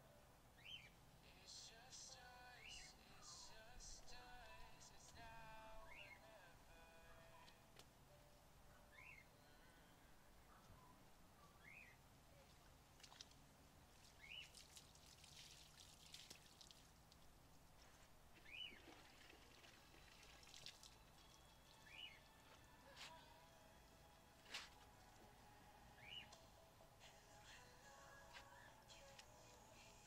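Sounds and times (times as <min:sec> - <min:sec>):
bird chirping: 0:00.6 - 0:01.0, 0:05.7 - 0:06.5, 0:08.8 - 0:09.7, 0:10.6 - 0:12.0, 0:14.2 - 0:14.6, 0:18.4 - 0:19.0, 0:21.2 - 0:22.5, 0:25.9 - 0:26.7
water pouring and splashing: 0:13.0 - 0:18.0, 0:18.8 - 0:21.3.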